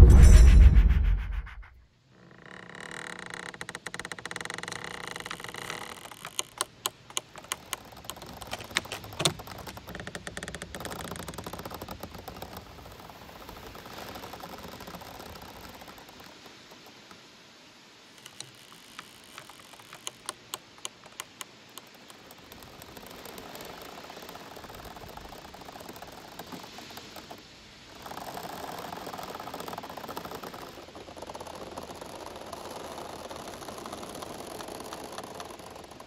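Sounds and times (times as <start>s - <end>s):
bamboo creaking: 2.1s - 36.0s
leaves rustling: 12.2s - 36.0s.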